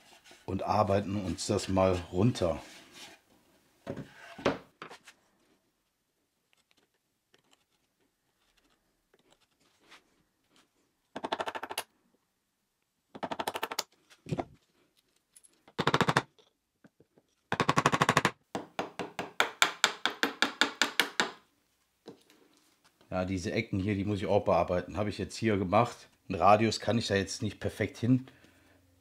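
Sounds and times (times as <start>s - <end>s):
mallet tapping chisel: 18.6s - 21.4s.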